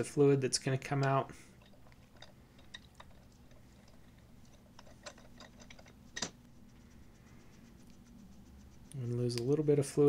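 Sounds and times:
metal clicks and taps: 0:01.0 - 0:06.4.

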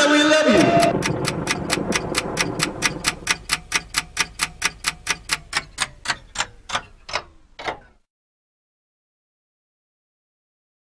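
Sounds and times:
clock ticking fast: 0:00.2 - 0:07.4.

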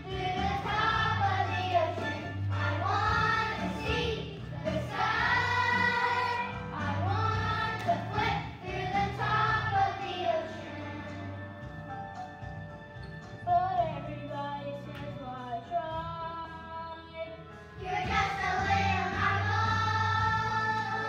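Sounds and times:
children singing together: 0:00.0 - 0:11.4, 0:17.8 - 0:21.0
instrumental accompaniment: 0:00.0 - 0:16.8.

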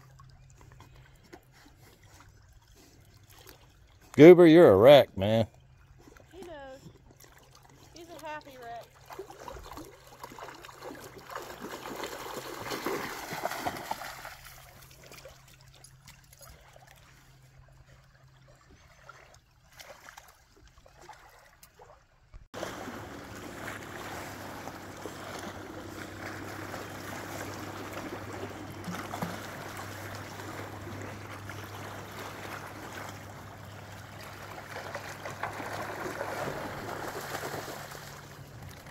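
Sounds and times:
water trickling and splashing: 0:00.0 - 0:04.6, 0:05.5 - 0:38.9
steady water noise: 0:00.0 - 0:38.9
low even hum: 0:22.6 - 0:38.9.

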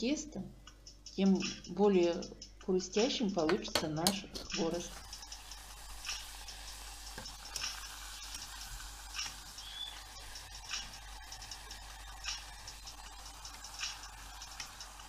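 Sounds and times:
dough sizzling in hot oil: 0:04.7 - 0:15.0.

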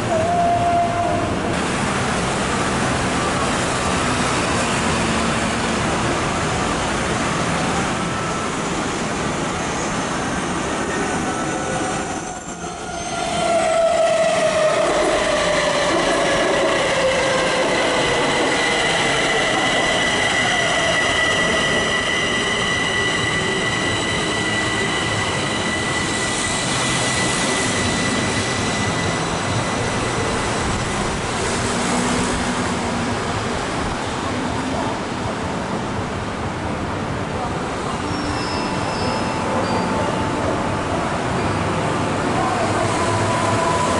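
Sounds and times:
high brake squeal: 0:09.6 - 0:16.2, 0:16.9 - 0:31.2, 0:38.0 - 0:40.4.

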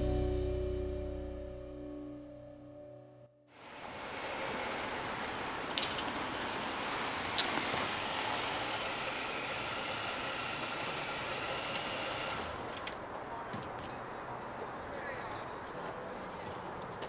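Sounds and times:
road noise: 0:03.5 - 0:17.0
car engine idling: 0:03.6 - 0:12.8.

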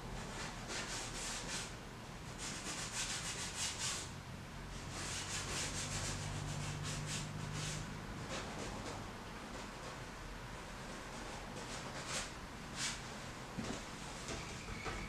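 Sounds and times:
paintbrush rubbing on canvas: 0:04.9 - 0:08.9.

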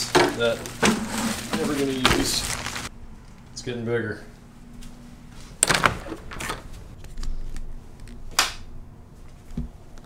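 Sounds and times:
fishing rods rustling: 0:00.0 - 0:02.9.

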